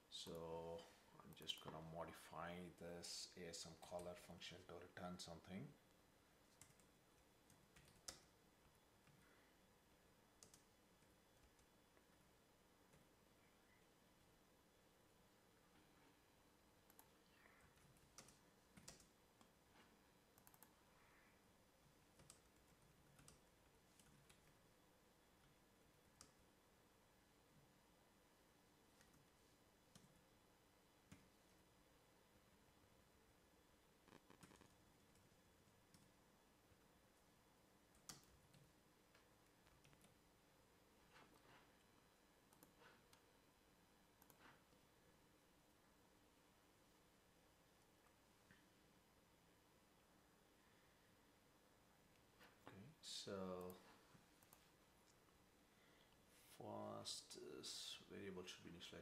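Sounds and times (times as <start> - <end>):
keyboard typing: 6.5 - 9.2, 10.3 - 12.1, 16.8 - 20.8, 21.9 - 24.6, 34.0 - 36.2, 37.9 - 40.2
mouse clicks: 20.4 - 20.8, 44.2 - 44.5.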